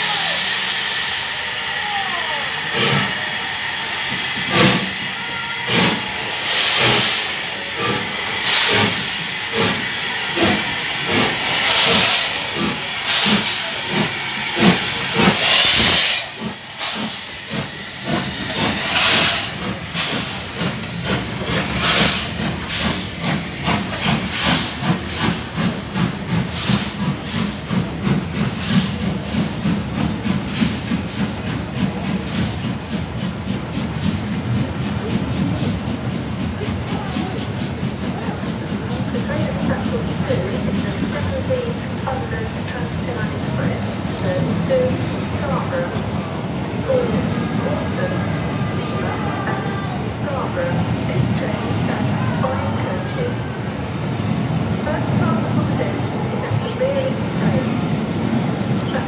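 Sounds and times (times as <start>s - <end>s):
hissing steam bursts: 0.0s - 37.6s
steam locomotive exhaust beats: 0.0s - 59.0s
train coaches clattering: 0.0s - 59.0s.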